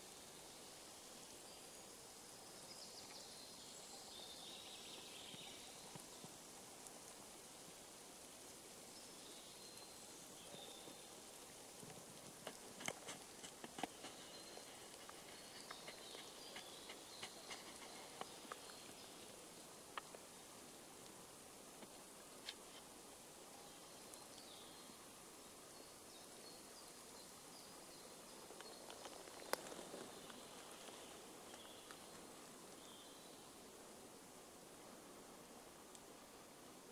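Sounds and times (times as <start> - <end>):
faint steady hiss: 0.0 - 36.9
soft rustling: 10.2 - 23.0, 28.4 - 32.8
sharp clicks and crackles: 11.8 - 18.8, 28.6 - 32.0.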